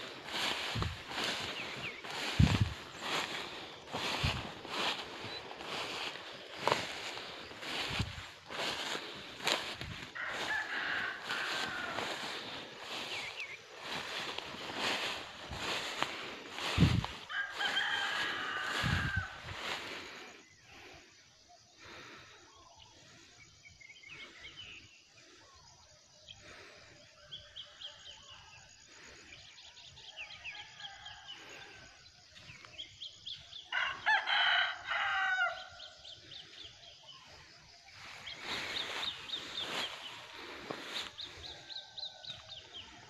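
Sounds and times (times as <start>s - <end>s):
small birds chirping: 0.0s - 25.4s, 35.7s - 43.0s
rooster crowing: 0.1s - 19.8s, 33.7s - 35.9s.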